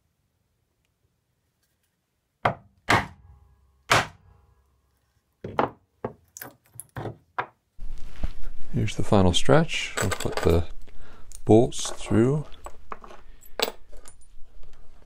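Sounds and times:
chisel striking wood: 2.4s - 3.2s, 3.9s - 4.2s.

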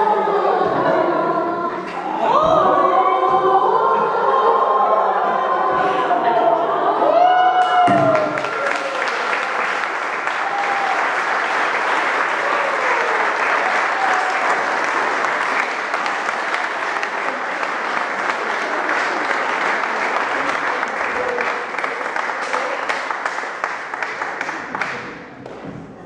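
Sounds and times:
choir singing held note: 0.0s - 23.4s
audience applauding: 7.4s - 25.6s.

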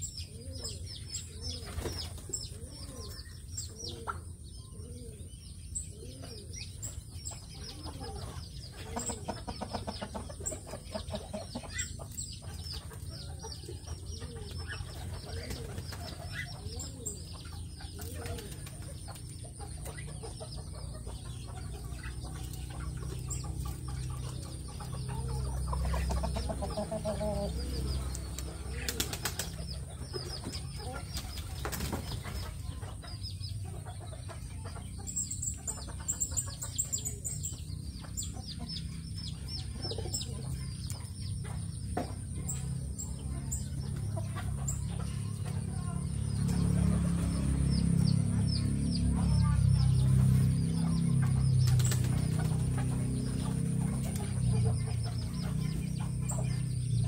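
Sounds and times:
birds chirping: 0.0s - 57.0s
wings flapping: 28.4s - 29.6s, 31.1s - 32.4s, 51.6s - 54.2s.

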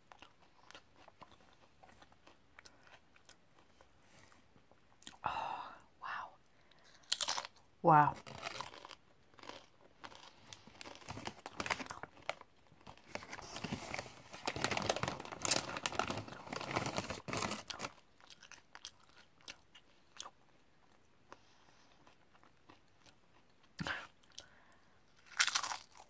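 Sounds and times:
person crunching and chewing crisps: 0.0s - 3.9s, 6.7s - 26.0s.

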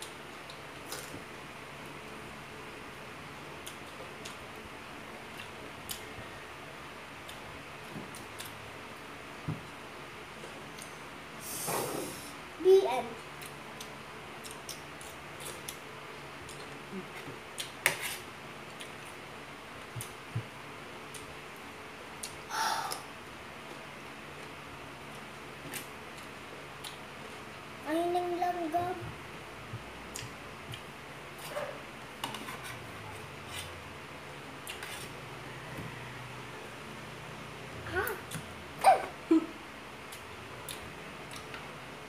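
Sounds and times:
fork scraping on plate: 32.2s - 33.7s.

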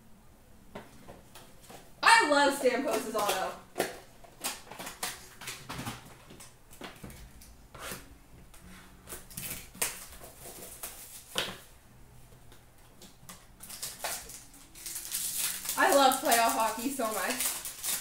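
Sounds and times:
wrapper crinkling and tearing: 2.8s - 6.1s, 9.2s - 11.6s, 13.4s - 18.0s
trading cards being handled: 13.3s - 18.0s.

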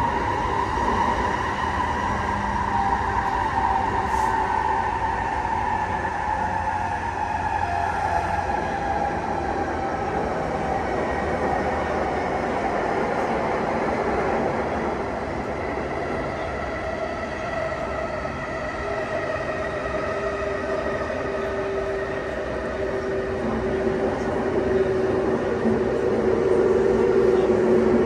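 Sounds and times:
train wheel and track rumble: 0.0s - 28.0s.

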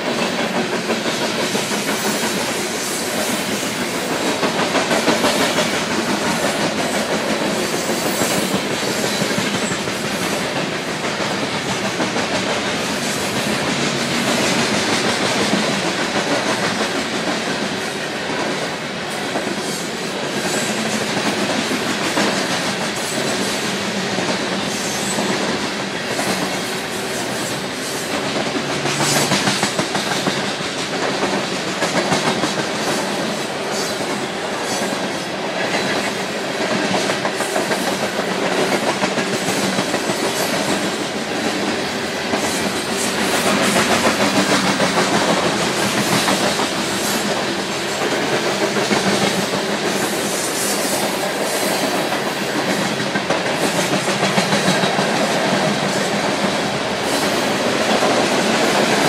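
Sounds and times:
freight train rumble and rattle: 0.0s - 59.0s
wheels clacking over rail joints: 0.0s - 59.0s.

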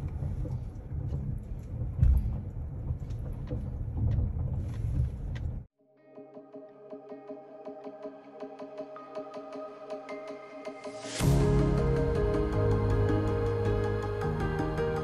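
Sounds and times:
quiet background music: 5.8s - 15.0s.

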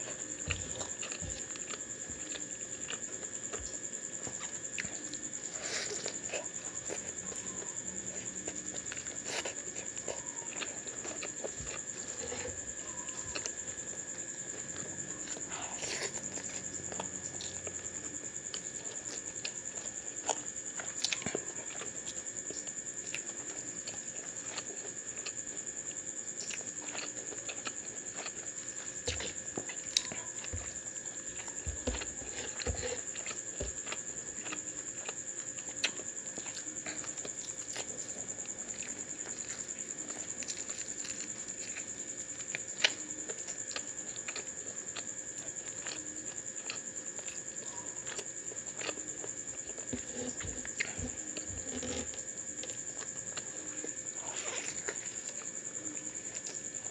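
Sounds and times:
chewing with wet mouth clicks: 0.0s - 56.9s
fingers working food on board: 49.7s - 52.3s.

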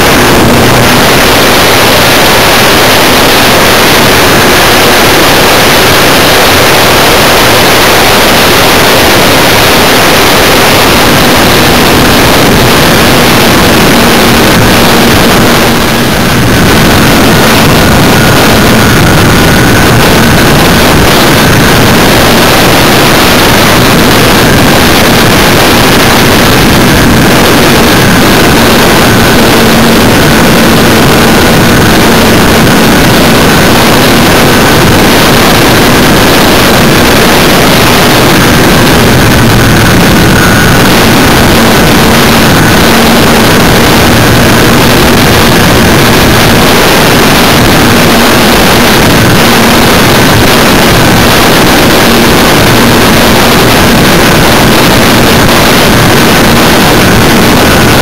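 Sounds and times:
electric motor high whine: 0.0s - 58.0s
wind rush: 0.0s - 58.0s.

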